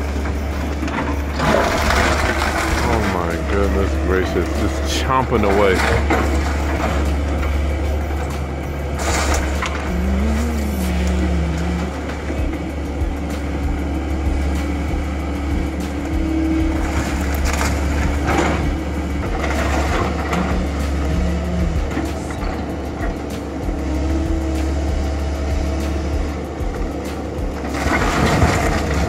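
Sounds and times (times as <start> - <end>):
excavator diesel engine rumbling: 0.0 - 29.0
timber cracking and crashing: 0.9 - 7.1, 9.0 - 11.2.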